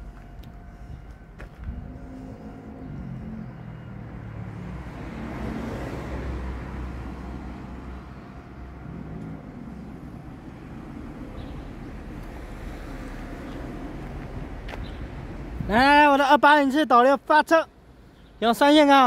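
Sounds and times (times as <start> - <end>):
low engine hum: 0.0 - 15.7
car driving past: 2.5 - 15.1.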